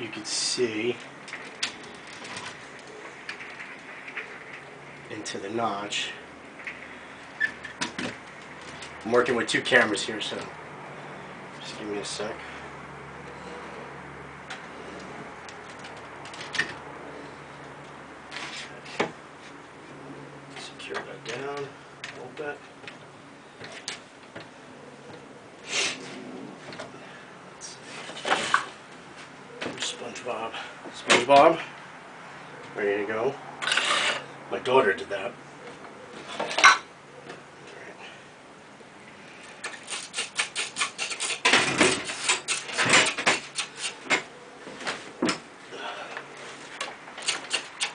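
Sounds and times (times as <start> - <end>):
wood rubbing on wood: 39.6 - 44.3.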